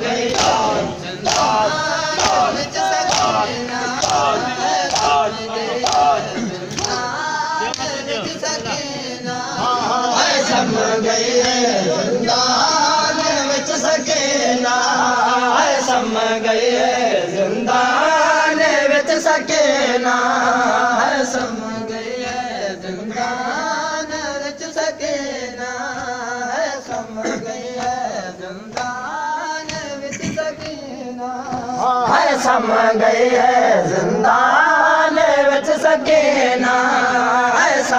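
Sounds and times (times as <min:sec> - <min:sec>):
men chanting in unison: 0:00.0 - 0:37.9.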